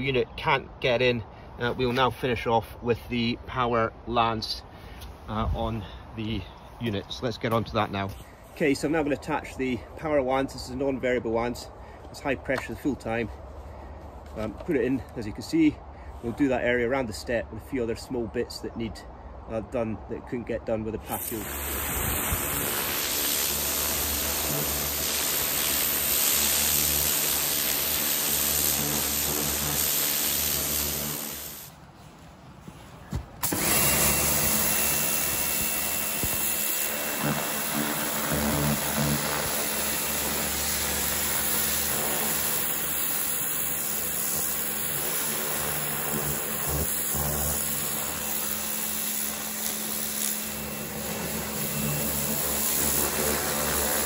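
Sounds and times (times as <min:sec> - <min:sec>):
pressure washer jet hissing: 0:21.1 - 0:31.8, 0:33.4 - 0:54.0
pressure washer motor humming: 0:21.2 - 0:31.7, 0:33.4 - 0:54.0.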